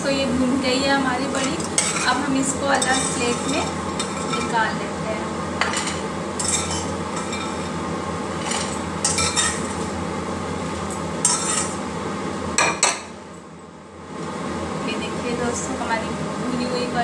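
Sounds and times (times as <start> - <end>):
metal spoon scraping a pot: 2.8 - 4.6, 5.6 - 7.8, 8.4 - 9.7, 11.2 - 11.8.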